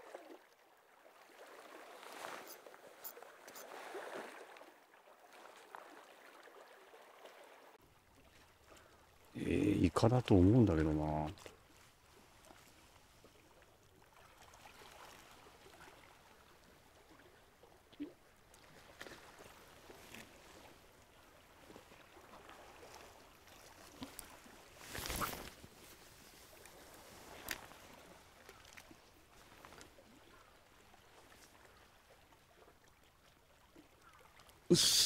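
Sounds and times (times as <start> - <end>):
sea water lapping on shore: 0.0 - 34.7
brief rustle: 24.8 - 27.8.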